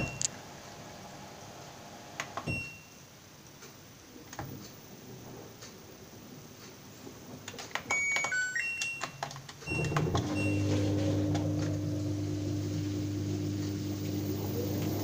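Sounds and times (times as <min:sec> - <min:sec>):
washing machine motor humming: 0:09.7 - 0:15.0.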